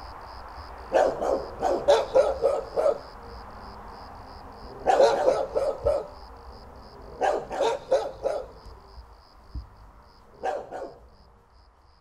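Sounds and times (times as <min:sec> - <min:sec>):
insect chirping: 0:00.0 - 0:12.0
dog barking: 0:00.9 - 0:03.2, 0:04.7 - 0:06.2, 0:07.1 - 0:08.6, 0:10.3 - 0:11.1.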